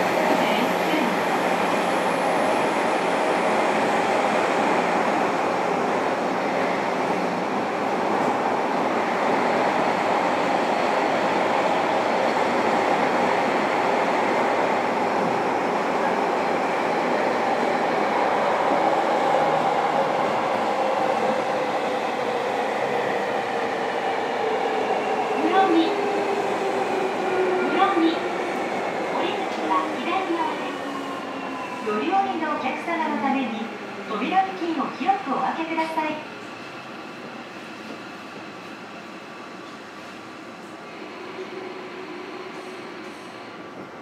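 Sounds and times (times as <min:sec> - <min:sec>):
train wheels rumbling on rail: 0:00.0 - 0:32.4.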